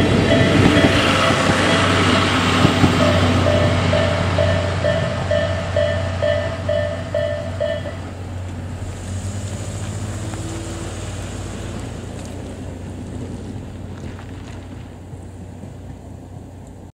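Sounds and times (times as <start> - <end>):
level-crossing alarm bell ringing: 0.0 - 8.1.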